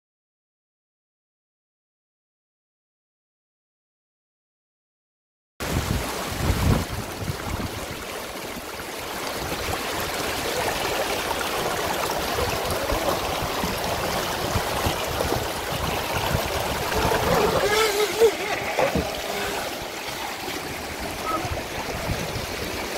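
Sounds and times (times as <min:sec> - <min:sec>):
whitewater rapids rushing: 0:05.6 - 0:22.9.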